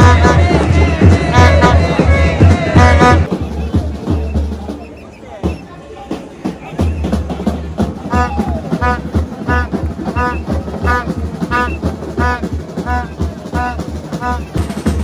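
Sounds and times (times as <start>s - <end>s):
horn blowing short notes: 0.0s - 3.3s, 8.1s - 14.6s
steady drum beat: 0.0s - 15.0s.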